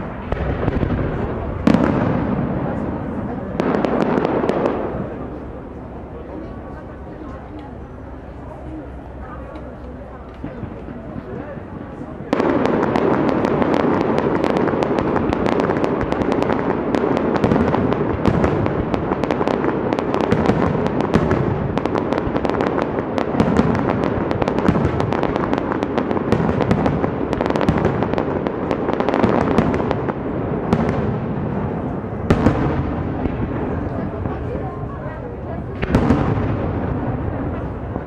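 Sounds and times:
sharp firework bang: 0.0 - 5.3, 35.8 - 37.8
fireworks crackling: 0.0 - 38.0.

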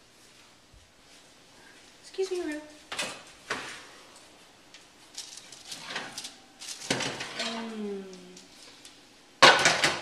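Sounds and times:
baking sheet scraping on wire rack: 5.3 - 7.5.

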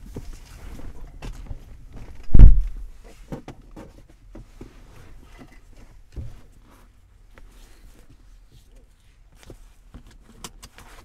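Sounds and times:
rustling in seat: 0.0 - 11.0
light thump: 2.2 - 2.9.

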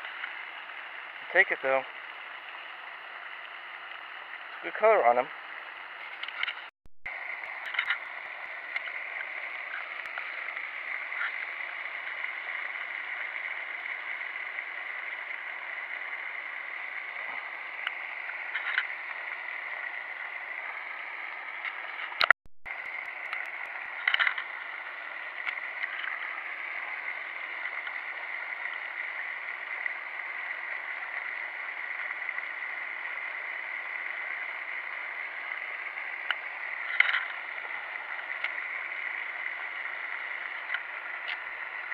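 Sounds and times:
fountain spray splashing: 0.0 - 41.9
faint ticks: 21.6 - 24.7, 25.4 - 26.4, 36.2 - 41.9.

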